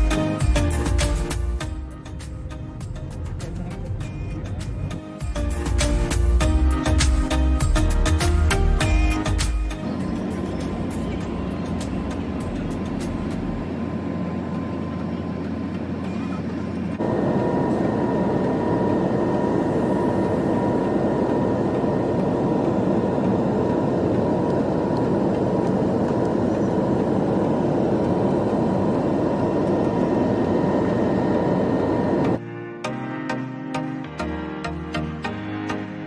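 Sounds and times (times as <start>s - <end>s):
quiet cabin hum: 8.8s - 32.4s
jet engine and rushing air: 9.7s - 32.4s
faint steady whine: 9.8s - 32.4s.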